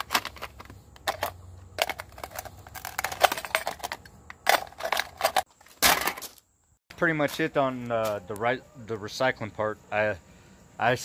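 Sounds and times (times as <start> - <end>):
crunching and clattering: 0.0 - 6.5.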